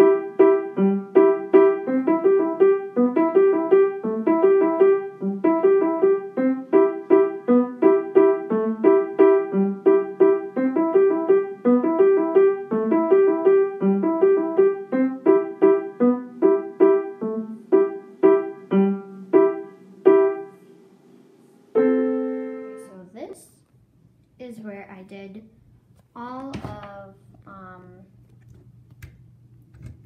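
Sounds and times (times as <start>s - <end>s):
piano quick repeated notes: 0.0s - 20.6s.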